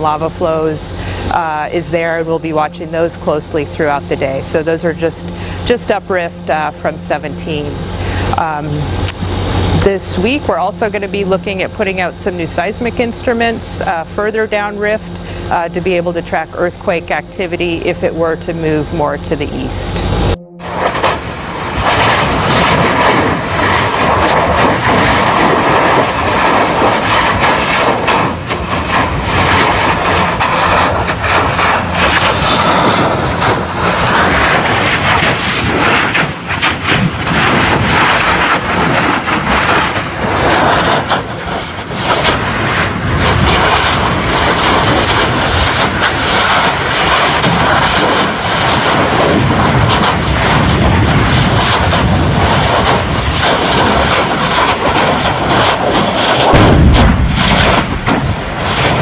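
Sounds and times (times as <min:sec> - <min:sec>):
lava jetting rushing noise: 0:20.7 - 0:59.0
lava spatter bursts: 0:20.8 - 0:59.0.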